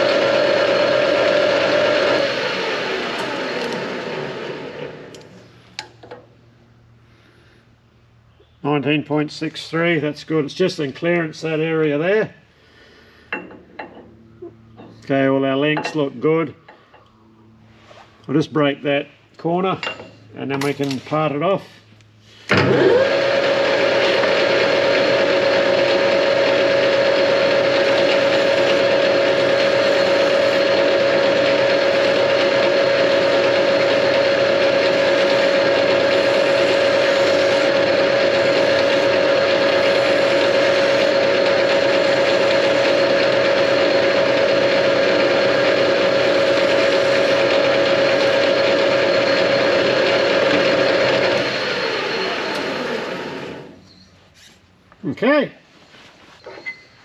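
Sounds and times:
metal lathe running: 0.0 - 5.2, 22.5 - 53.8
constant machine whine: 0.0 - 7.4, 13.3 - 22.7, 23.3 - 54.2.

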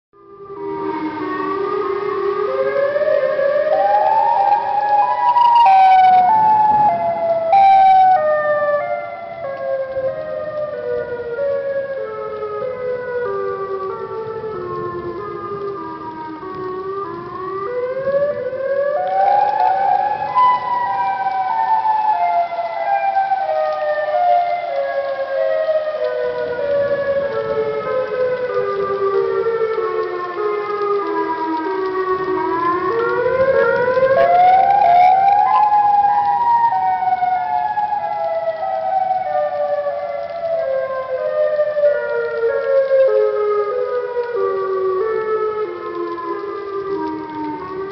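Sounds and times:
tornado siren wailing: 0.2 - 47.9.

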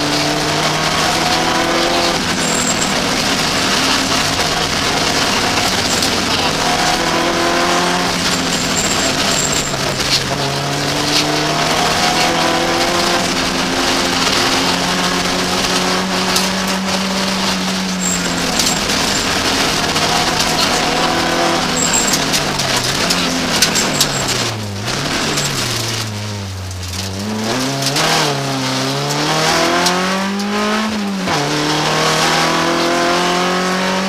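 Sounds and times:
rally car engine revving: 0.0 - 34.0
road and tyre noise: 0.0 - 34.0.

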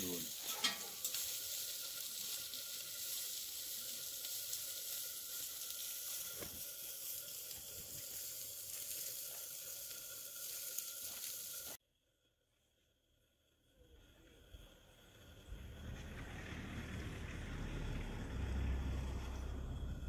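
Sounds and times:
steady hiss: 0.0 - 11.8.

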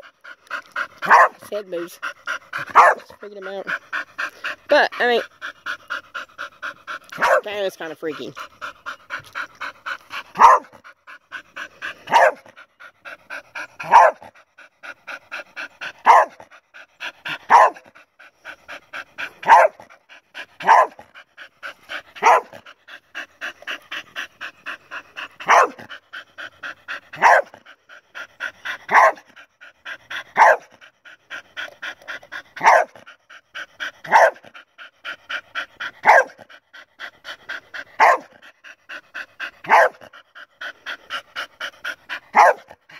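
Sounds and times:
dog panting: 0.0 - 42.9
dog barking: 1.0 - 1.4, 2.7 - 3.1, 7.2 - 7.5, 10.4 - 10.7, 12.1 - 12.4, 13.8 - 14.2, 16.0 - 16.4, 17.5 - 17.8, 19.4 - 19.8, 20.6 - 21.0, 22.2 - 22.6, 25.4 - 25.8, 27.2 - 27.6, 28.9 - 29.2, 30.4 - 30.7, 32.6 - 33.0, 34.1 - 34.4, 36.0 - 36.4, 38.0 - 38.3, 39.7 - 40.0, 42.3 - 42.7.

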